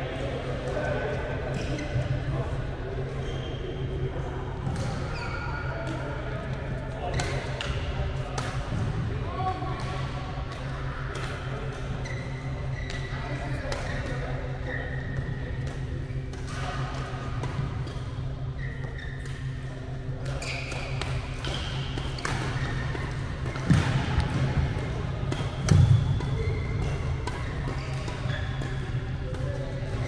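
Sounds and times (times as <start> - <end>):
steady low hum: 0.0 - 30.0
shoes squeaking on court floor: 3.2 - 3.9, 4.8 - 6.0, 11.4 - 16.8, 17.8 - 29.2
rackets hitting shuttlecock: 7.1 - 8.9, 20.2 - 30.0.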